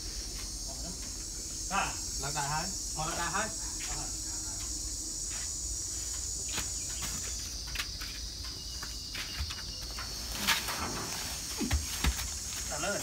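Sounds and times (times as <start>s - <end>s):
insects droning: 0.0s - 13.0s
sacks knocking and rustling: 9.2s - 13.0s.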